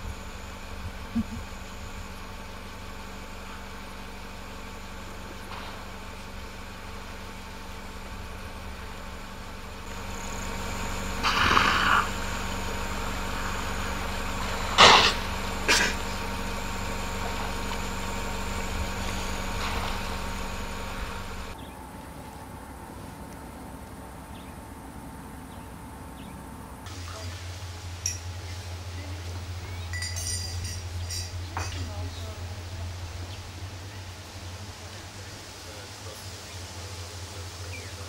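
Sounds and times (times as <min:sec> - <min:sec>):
vehicle engine idling: 0:00.0 - 0:38.0
short sharp noise bursts: 0:09.9 - 0:13.5.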